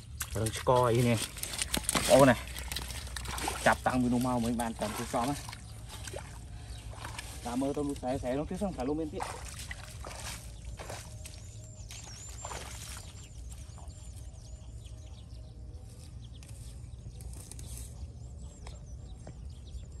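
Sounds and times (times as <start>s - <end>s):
bare feet splashing in water: 0.0s - 14.9s
small birds chirping: 0.0s - 20.0s.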